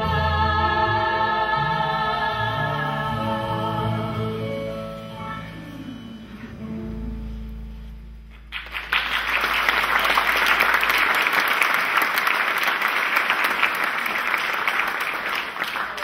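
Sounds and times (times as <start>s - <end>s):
held music chord: 0.0s - 8.5s
audience applause: 8.4s - 16.0s.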